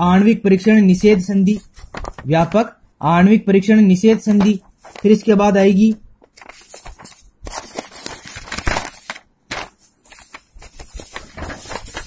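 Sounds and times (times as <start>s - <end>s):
paper pages rustling: 1.0s - 2.6s, 4.2s - 12.0s.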